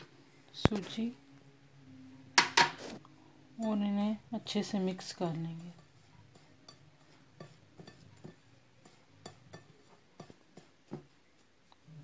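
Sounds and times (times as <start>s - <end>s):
soft rub of powder: 4.8s - 12.0s
fingertips tapping a china bowl: 5.3s - 11.9s.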